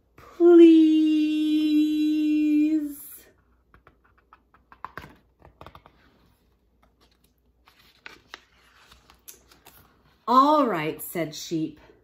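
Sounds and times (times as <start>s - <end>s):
paper pages rustling: 3.8s - 10.2s.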